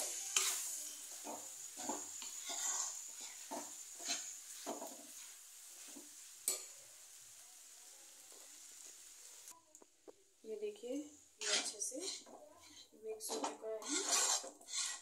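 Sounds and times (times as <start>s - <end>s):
light sizzle: 0.0s - 15.0s
metal spoon scraping pan: 0.1s - 6.7s, 11.4s - 15.0s.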